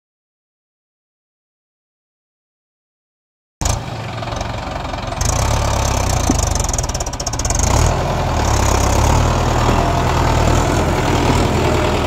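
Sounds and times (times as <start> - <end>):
tractor diesel engine clattering: 3.6 - 12.0.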